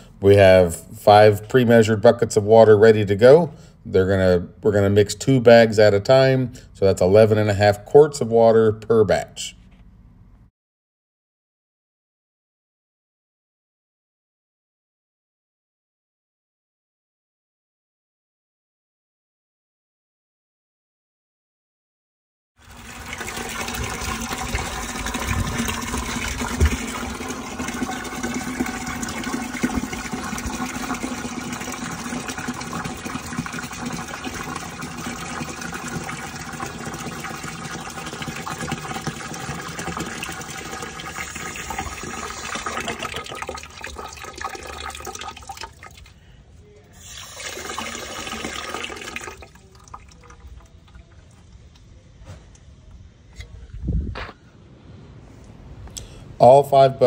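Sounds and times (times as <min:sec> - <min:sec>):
water running into plastic bucket: 0:22.6 - 0:46.2, 0:47.0 - 0:51.4.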